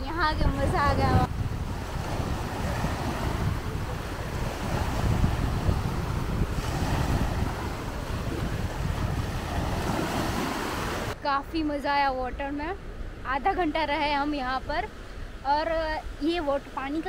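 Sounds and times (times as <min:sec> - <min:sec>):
wind buffeting microphone: 0:00.0 - 0:17.0
small waves breaking: 0:00.9 - 0:11.2.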